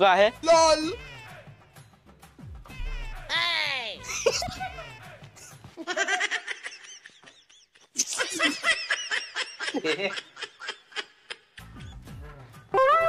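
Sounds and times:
man and woman laughing: 0:04.0 - 0:11.7.

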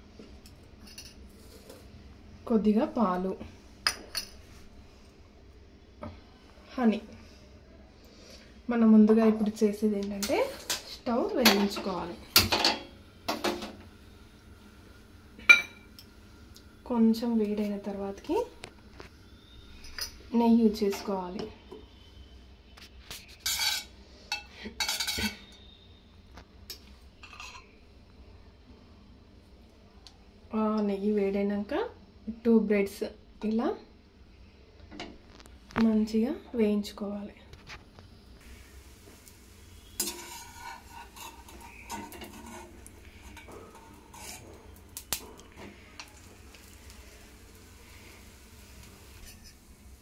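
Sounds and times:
faint frying sizzle: 0:00.0 - 0:50.0
metal skimmer scraping a pan: 0:38.5 - 0:49.6
metal spoon scraping pan: 0:39.7 - 0:44.8.

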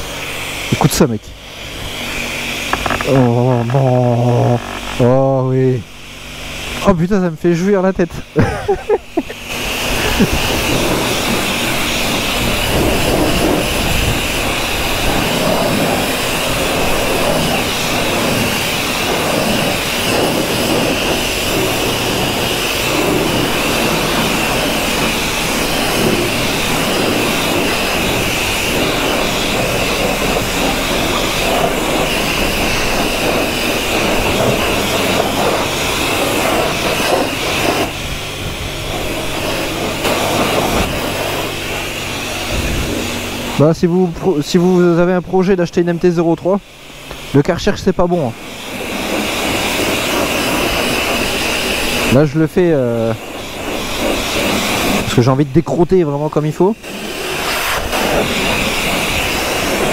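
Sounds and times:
pump hum: 0:00.0 - 0:45.4, 0:46.3 - 0:59.9
pressure washer water jet: 0:00.0 - 0:59.9.

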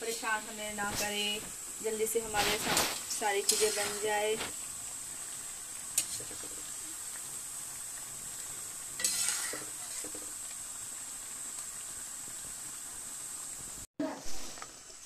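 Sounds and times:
dough sizzling in hot oil: 0:00.0 - 0:15.0.

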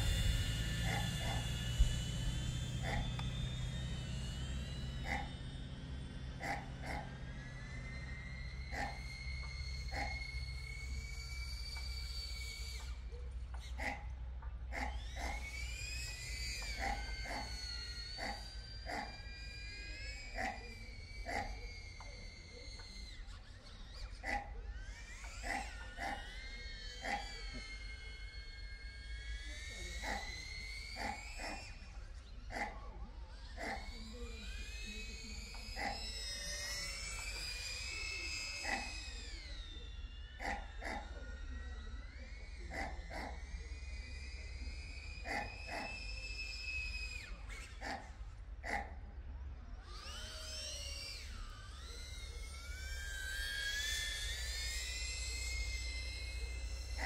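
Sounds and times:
short animal calls: 0:00.0 - 0:19.3, 0:20.2 - 0:39.5, 0:40.3 - 0:41.2, 0:45.2 - 0:49.0
drone propellers whining: 0:00.0 - 0:57.0
dog barking: 0:06.4 - 0:07.1, 0:13.8 - 0:14.0, 0:47.8 - 0:49.0.

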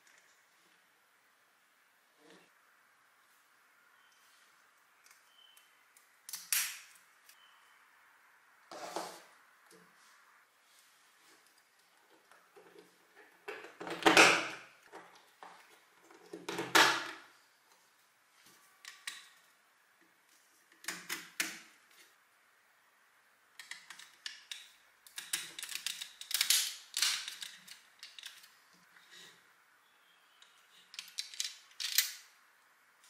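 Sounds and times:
plastic pieces clicking together: 0:23.6 - 0:28.5, 0:30.9 - 0:32.2.

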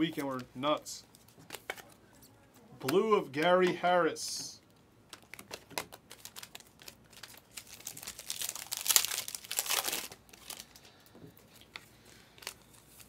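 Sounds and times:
foil wrapper crinkling and tearing: 0:05.1 - 0:10.9, 0:11.5 - 0:13.0.

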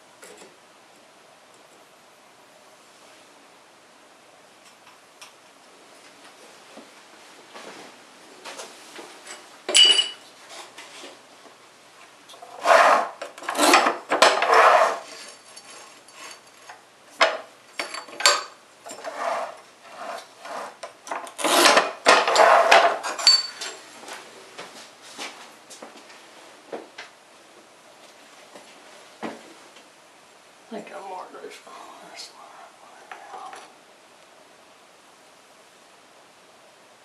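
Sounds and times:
ceramic tile clinking: 0:09.7 - 0:10.2, 0:22.3 - 0:23.8
tile cutter scraping tile: 0:12.4 - 0:16.8, 0:18.9 - 0:23.2.

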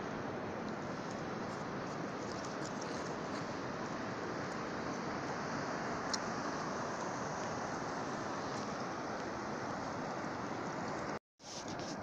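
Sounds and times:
sea surf on rocky shore: 0:00.0 - 0:11.2
wind: 0:00.0 - 0:12.0.

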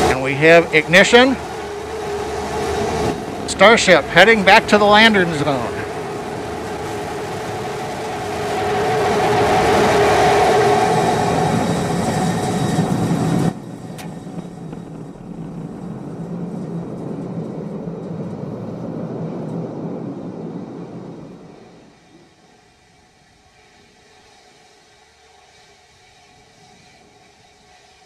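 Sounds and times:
rocket engines roaring: 0:00.0 - 0:22.8
low rumble: 0:10.8 - 0:21.9.

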